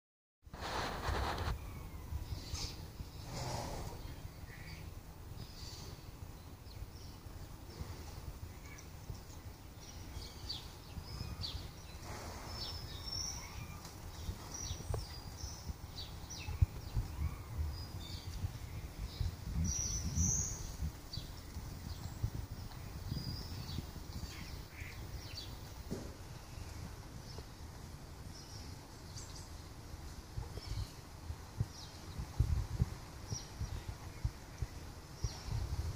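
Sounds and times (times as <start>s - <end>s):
steady low rumble: 0.6s - 28.1s
small birds chirping: 0.6s - 35.9s.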